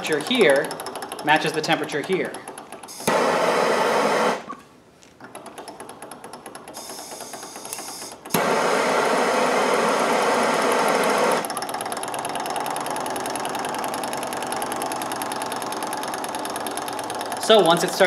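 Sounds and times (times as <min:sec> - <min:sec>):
stirling engine ticking: 0:00.0 - 0:02.8, 0:09.7 - 0:18.0
gas torch hissing: 0:02.9 - 0:04.5, 0:08.3 - 0:11.4.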